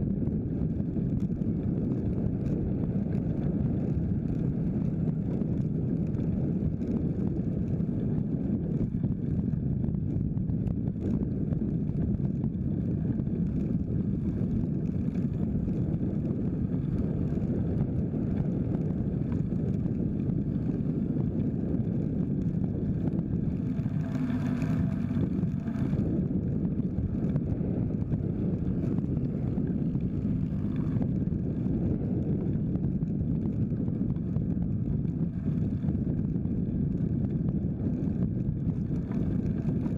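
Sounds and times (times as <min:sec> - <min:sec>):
wind buffeting microphone: 0:00.0 - 0:39.9
motor vehicle passing: 0:22.9 - 0:32.2.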